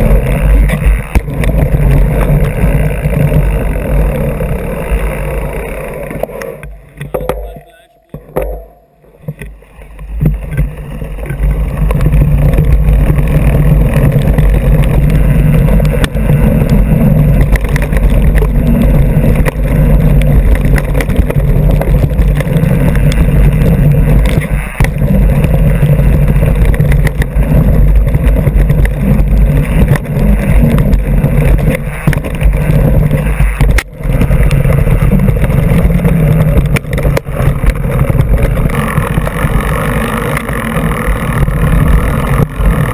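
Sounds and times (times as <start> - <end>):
bike wheel rumbling on dirt trail: 0.0 - 42.9
wind rushing over microphone: 10.1 - 42.9.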